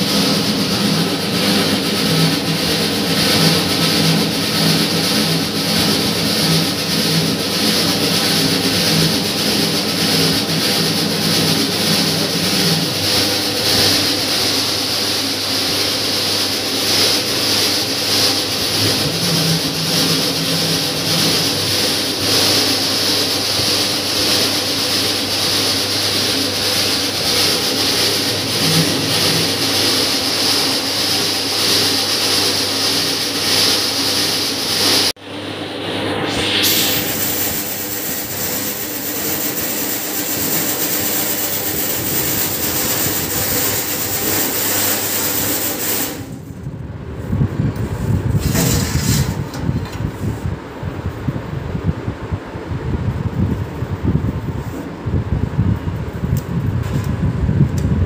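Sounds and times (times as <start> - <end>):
dough kneader motor hum: 0.0 - 35.1, 35.8 - 46.8
paddle churning flour: 0.0 - 50.6.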